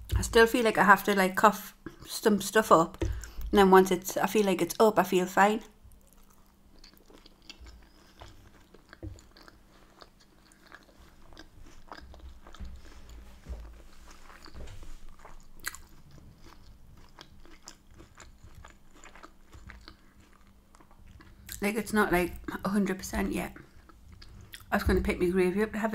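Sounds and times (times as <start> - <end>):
chewing food: 2.9 - 3.5, 5.9 - 21.6, 22.3 - 24.7.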